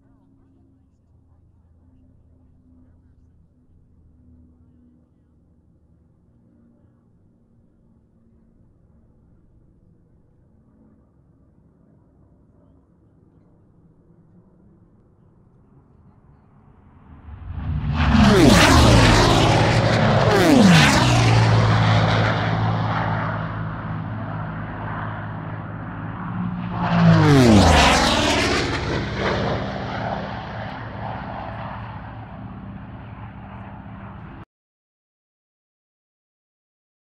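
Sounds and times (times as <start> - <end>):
aircraft flying past: 15.5 - 34.4.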